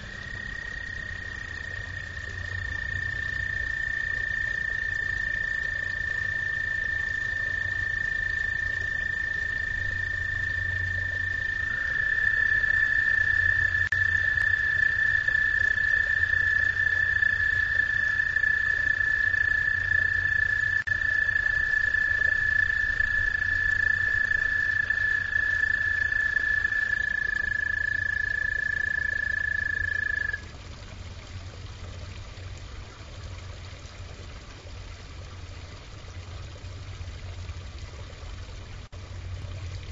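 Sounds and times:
frogs trilling: 0:00.0 - 0:30.5
water trickling: 0:00.0 - 0:39.9.

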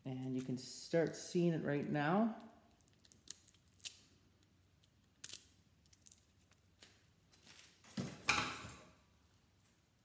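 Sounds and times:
tape crackling as peeled: 0:02.4 - 0:07.8.

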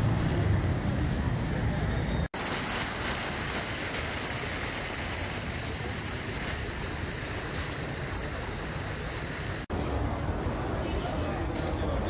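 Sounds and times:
fountain jets splashing into basin: 0:00.0 - 0:10.7.

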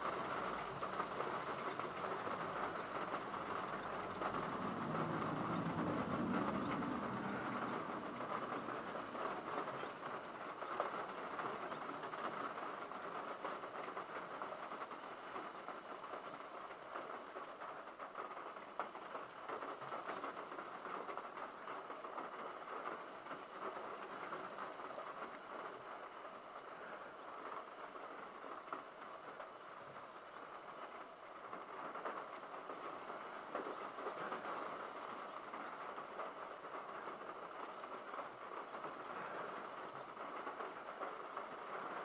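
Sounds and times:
heavy rain on car roof: 0:00.0 - 0:42.0.

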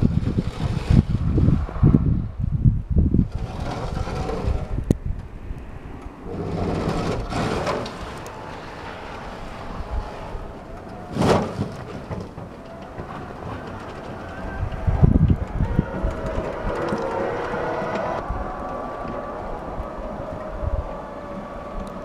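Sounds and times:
plough blade scraping snow: 0:00.0 - 0:01.4, 0:03.3 - 0:04.8, 0:06.3 - 0:14.6.

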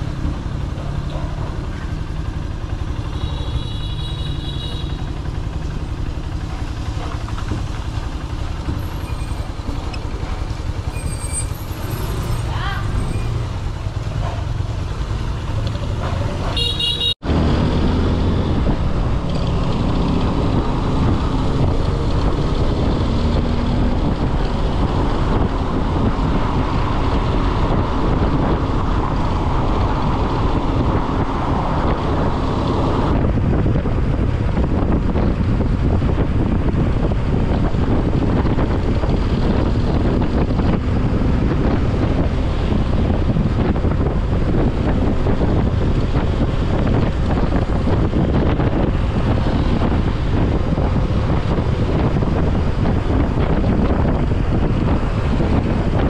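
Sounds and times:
motorcycle engine: 0:00.0 - 0:56.0
wind rush on microphone: 0:05.2 - 0:56.0
horn toot: 0:16.6 - 0:17.2.

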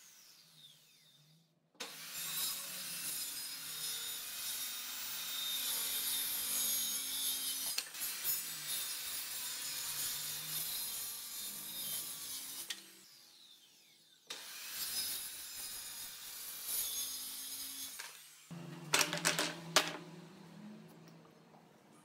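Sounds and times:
wooden strips knocking together: 0:18.9 - 0:20.1.

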